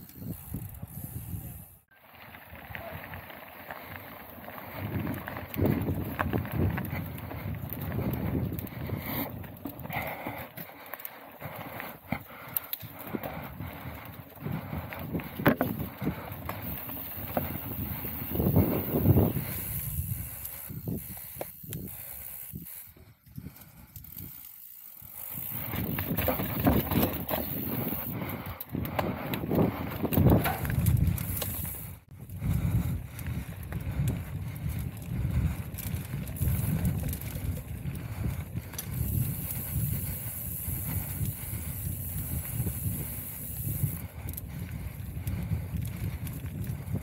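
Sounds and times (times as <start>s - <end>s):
mountain bike rattling on trail: 0.0s - 47.0s
wind buffeting microphone: 2.4s - 10.7s, 11.4s - 24.4s, 25.2s - 47.0s
bike knocks and rattles: 15.0s - 19.3s, 25.4s - 28.1s, 28.9s - 31.6s.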